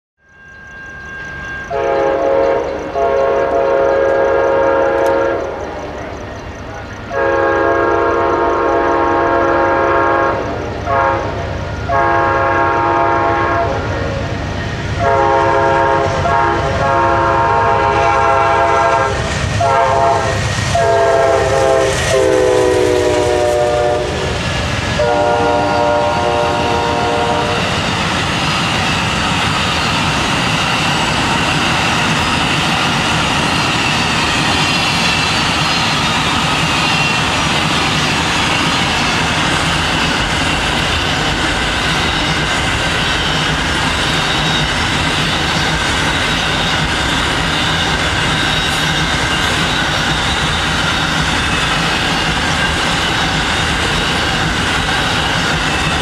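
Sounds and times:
train cars rumbling on rails: 0:00.2 - 0:56.0
locomotive horn blasts: 0:01.7 - 0:05.8, 0:07.1 - 0:14.1, 0:15.0 - 0:24.4, 0:25.0 - 0:27.7.

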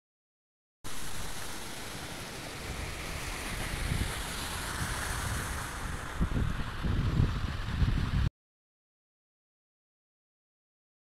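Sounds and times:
water rushing over a dam: 0:00.9 - 0:08.3
wind buffeting microphone: 0:02.6 - 0:08.3.

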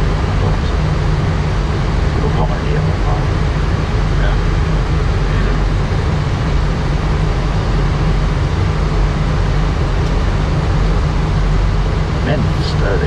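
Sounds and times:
low engine rumble: 0:00.0 - 0:13.0
rushing air in cockpit: 0:00.0 - 0:13.0.

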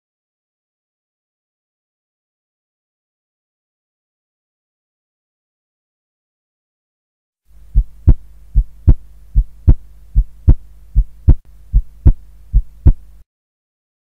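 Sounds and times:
steady low hum: 0:07.5 - 0:13.2
heartbeat thumps: 0:07.6 - 0:13.1.

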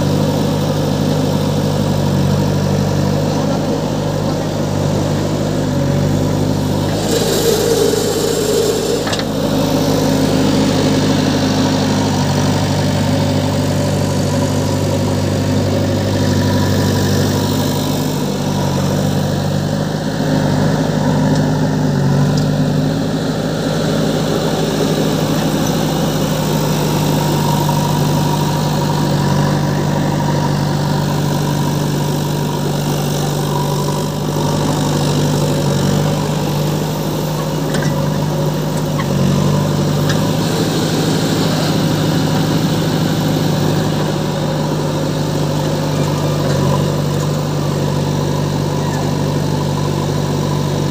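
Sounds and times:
backhoe loader diesel engine running: 0:00.0 - 0:50.9
tractor engine running: 0:00.0 - 0:50.9.

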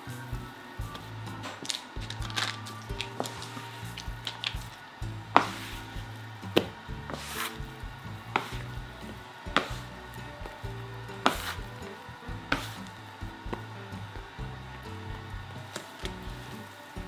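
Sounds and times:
dough being kneaded by hand: 0:00.0 - 0:17.0
soft background music: 0:00.0 - 0:17.0
bench scraper tapping and scraping: 0:05.4 - 0:05.8, 0:08.3 - 0:08.8, 0:11.2 - 0:11.7, 0:12.5 - 0:12.9.

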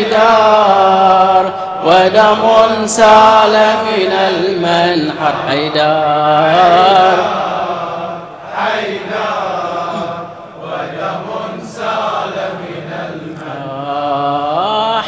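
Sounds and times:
lead reciter's voice: 0:00.0 - 0:15.0
men chanting a lament: 0:00.0 - 0:15.0.

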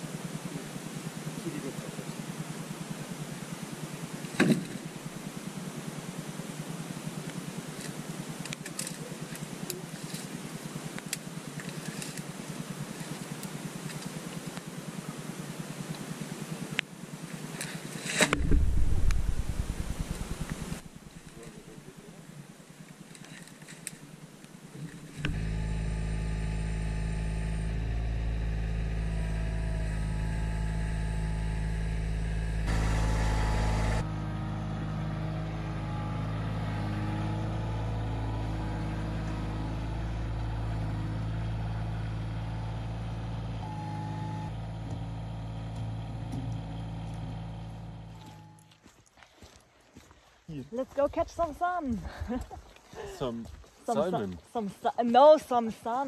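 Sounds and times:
tractor diesel engine running: 0:18.3 - 0:22.1, 0:24.1 - 0:48.6.

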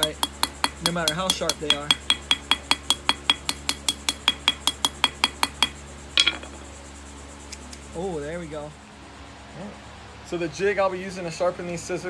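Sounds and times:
hammer tapping on metal: 0:00.0 - 0:06.6
sharp metallic knock: 0:00.0 - 0:06.7.

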